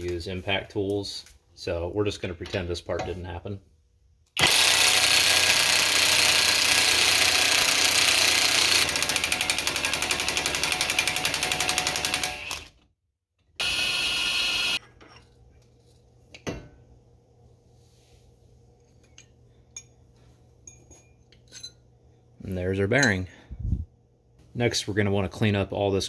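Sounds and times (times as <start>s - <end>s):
cordless impact wrench hammering: 4.4s - 12.7s.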